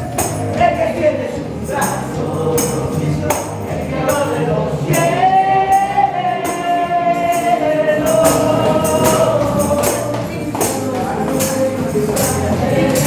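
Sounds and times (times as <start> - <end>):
person singing worship melody: 0.0 - 13.0
tambourine jingles: 0.0 - 13.0
steady beat: 7.4 - 13.0.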